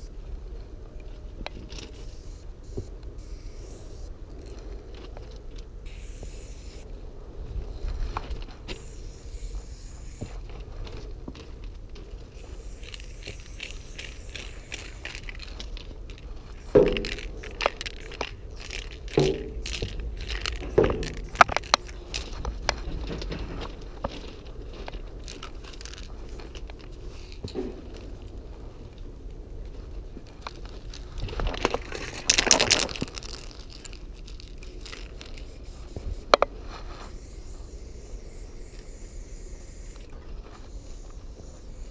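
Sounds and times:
spray paint can hissing: 0:01.8 - 0:04.1, 0:05.8 - 0:06.9, 0:08.7 - 0:10.4, 0:12.4 - 0:15.7, 0:16.5 - 0:22.3, 0:25.2 - 0:27.5, 0:34.8 - 0:41.9
footsteps on gravel: 0:07.8 - 0:28.8, 0:29.6 - 0:37.5.

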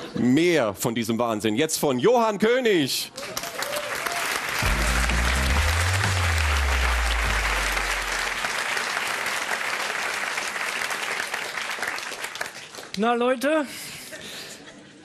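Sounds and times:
audience applauding: 0:03.1 - 0:13.0
low bass note jingle: 0:04.6 - 0:08.3.

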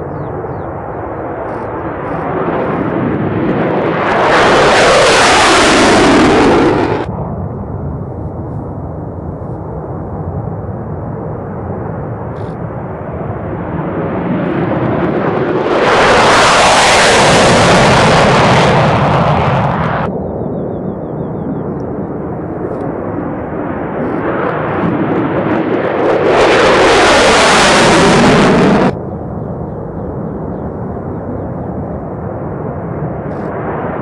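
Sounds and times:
fighter jets roaring: 0:00.0 - 0:07.5, 0:12.4 - 0:20.1, 0:20.7 - 0:32.0
low jet rumble: 0:00.0 - 0:34.0.

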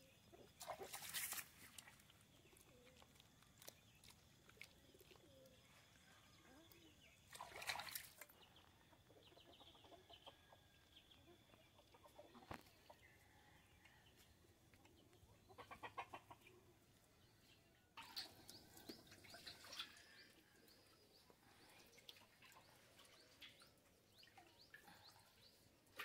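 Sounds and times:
chickens clucking: 0:08.3 - 0:20.1.

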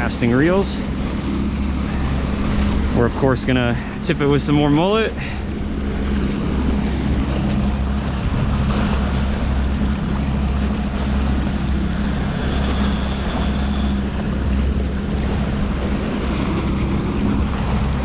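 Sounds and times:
boat engine humming: 0:00.0 - 0:18.0
wind buffeting microphone: 0:05.1 - 0:12.9, 0:14.0 - 0:18.0.

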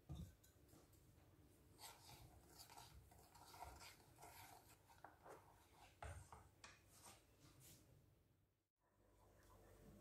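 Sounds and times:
wooden spoon scraping a saucepan: 0:01.7 - 0:06.5.

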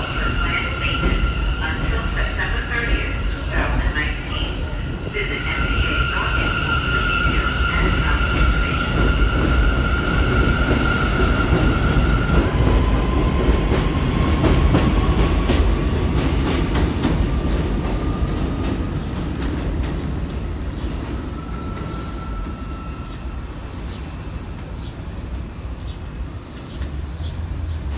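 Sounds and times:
deep rumble of train cars: 0:00.0 - 0:27.9
subway train motor whine: 0:00.0 - 0:27.9.

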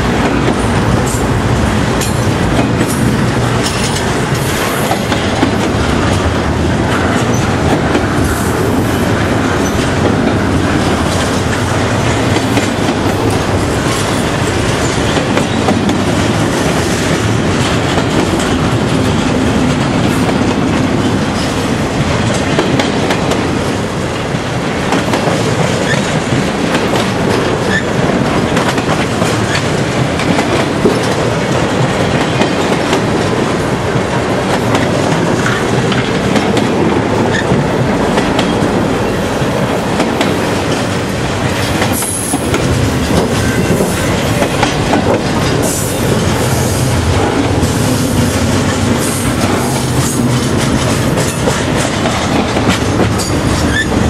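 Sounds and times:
train wheels clattering on rails: 0:00.0 - 0:54.0
train wheel squeals: 0:27.7 - 0:27.9, 0:53.2 - 0:54.0.

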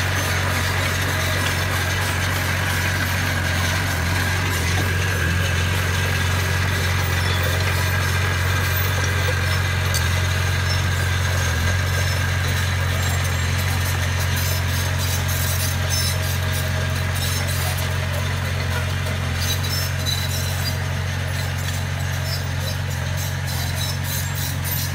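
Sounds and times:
blade pushing gravel: 0:00.0 - 0:18.0
bulldozer diesel engine droning: 0:00.0 - 0:24.9.

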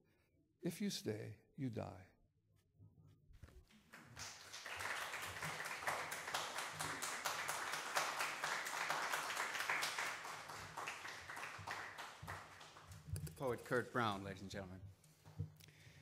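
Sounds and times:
audience applauding: 0:03.8 - 0:14.2.

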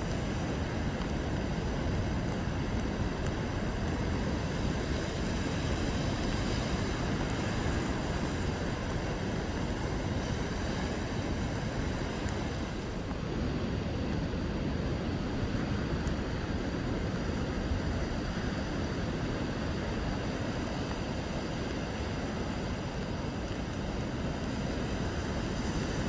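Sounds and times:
waves breaking on rocks: 0:00.0 - 0:14.3
wind buffeting the microphone: 0:00.0 - 0:26.0.

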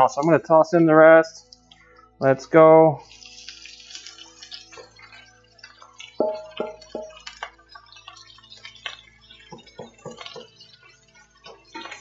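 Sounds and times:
faint sizzling: 0:00.0 - 0:12.0
soft background music: 0:00.0 - 0:12.0
utensil clinking cookware: 0:04.3 - 0:08.7, 0:09.4 - 0:10.6
small ticks: 0:07.0 - 0:12.0.

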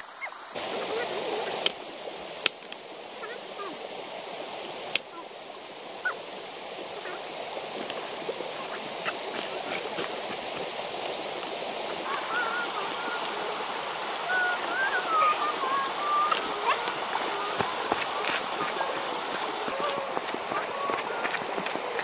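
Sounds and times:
river flowing over stones: 0:00.0 - 0:22.0
high wavering calls: 0:11.7 - 0:22.0.

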